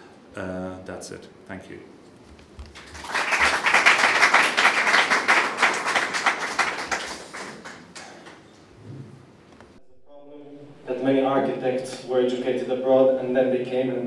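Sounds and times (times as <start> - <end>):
audience applauding: 2.6 - 8.5.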